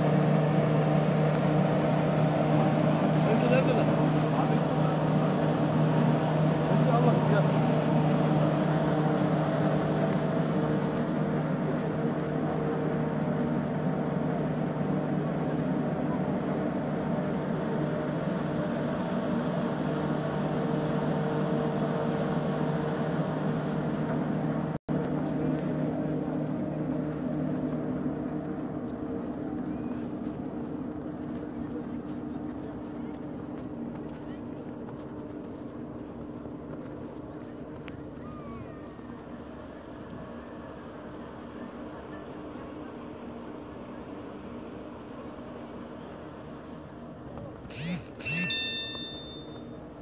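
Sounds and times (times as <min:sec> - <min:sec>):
engine humming: 0:00.0 - 0:50.0
outdoor background noise: 0:00.0 - 0:50.0
machine humming: 0:47.7 - 0:49.7.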